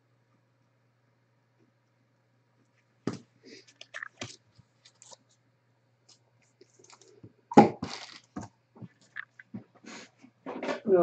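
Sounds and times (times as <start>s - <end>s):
packaging crinkling: 3.6s - 5.2s, 7.8s - 8.4s
cards and packaging rustling: 3.6s - 5.3s, 7.8s - 8.4s.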